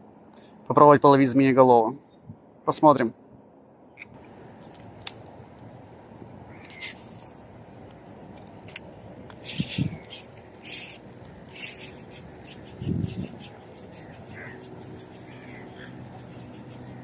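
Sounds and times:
fishing line hissing off spool: 0:06.5 - 0:07.6, 0:09.4 - 0:13.4
fishing reel scraping: 0:09.4 - 0:13.4.

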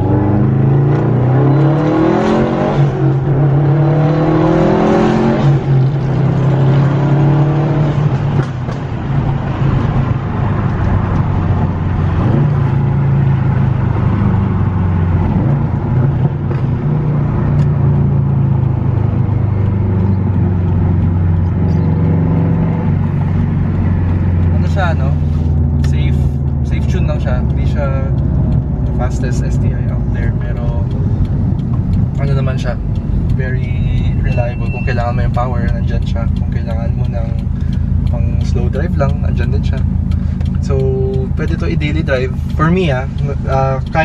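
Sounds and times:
car engine accelerating hard: 0:00.0 - 0:44.0.

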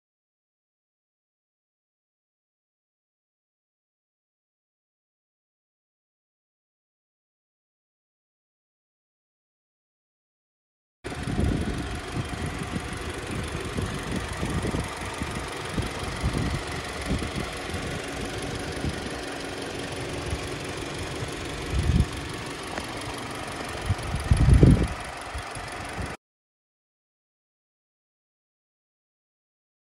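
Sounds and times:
wind buffeting microphone: 0:11.1 - 0:22.5, 0:23.7 - 0:26.2
car engine idling: 0:11.1 - 0:26.2.

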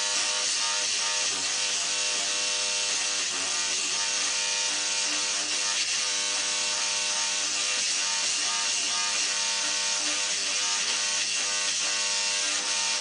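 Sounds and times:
electric toothbrush buzzing: 0:00.0 - 0:13.0.

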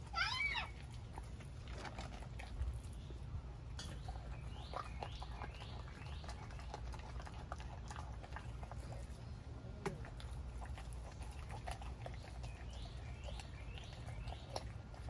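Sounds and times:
dog chewing raw chicken: 0:00.0 - 0:15.0
teeth crunching on bone: 0:09.8 - 0:15.0.

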